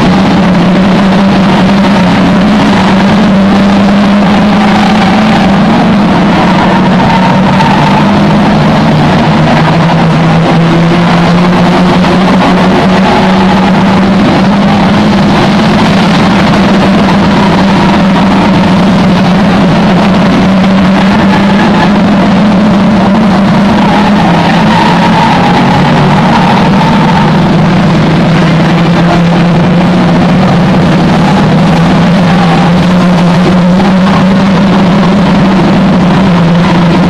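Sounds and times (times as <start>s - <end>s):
racing car engines roaring: 0.0s - 37.0s.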